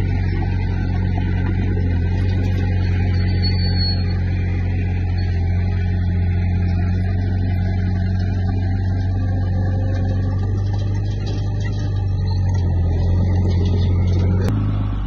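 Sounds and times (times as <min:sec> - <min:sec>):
bulldozer diesel engine droning: 0:00.0 - 0:15.0
brief high squeak: 0:03.1 - 0:04.2.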